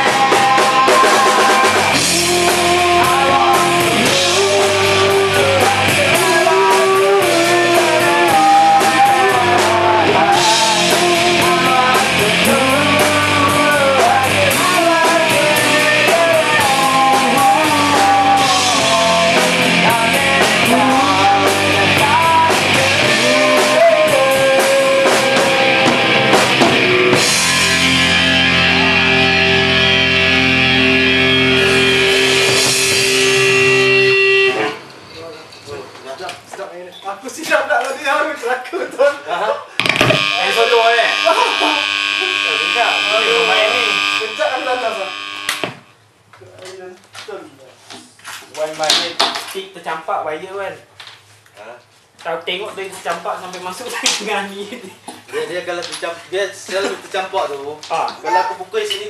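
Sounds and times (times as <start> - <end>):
person singing: 0.0 - 26.6, 40.1 - 45.2
electric bass: 0.0 - 34.8, 39.8 - 46.0
drum kit: 0.0 - 35.0, 39.8 - 45.9
electric guitar: 0.0 - 35.1, 39.8 - 46.0.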